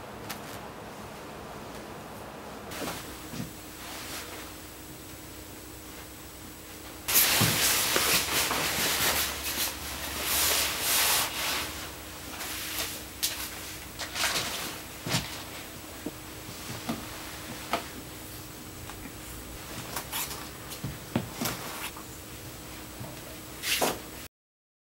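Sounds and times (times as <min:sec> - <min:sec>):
cutting cape rustling: 0:18.9 - 0:22.0.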